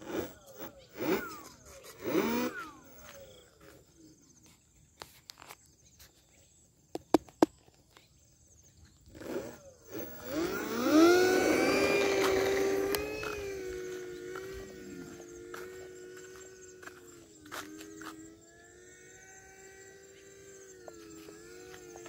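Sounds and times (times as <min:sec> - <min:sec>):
electric motor whining: 0:00.0 - 0:04.1, 0:09.0 - 0:22.0
sharp clicks: 0:10.0 - 0:14.7.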